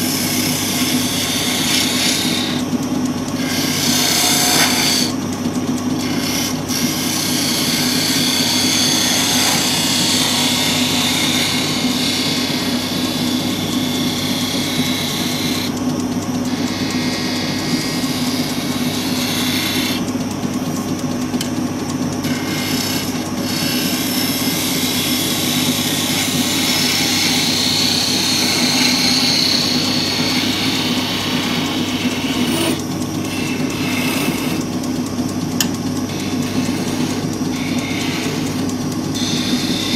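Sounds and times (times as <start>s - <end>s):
turning tool scraping wood: 0.0s - 39.9s
wood lathe humming: 0.0s - 39.9s.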